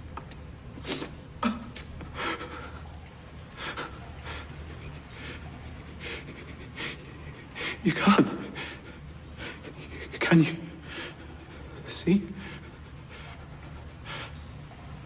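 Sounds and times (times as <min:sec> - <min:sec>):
steady low hum: 0:00.0 - 0:15.0
sniffing: 0:00.8 - 0:03.0, 0:03.6 - 0:14.6
man breathing heavily: 0:01.4 - 0:02.9, 0:03.5 - 0:14.7.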